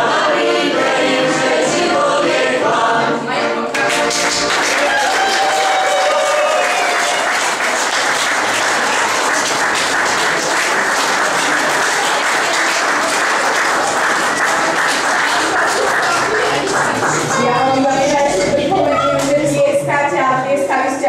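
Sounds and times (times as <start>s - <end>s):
audience applauding: 3.7s - 17.7s.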